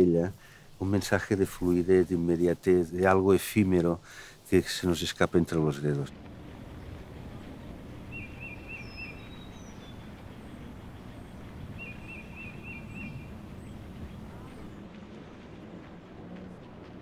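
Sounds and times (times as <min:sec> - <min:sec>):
low outdoor background noise: 0:00.0 - 0:17.0
small songbird chirping: 0:06.6 - 0:14.8.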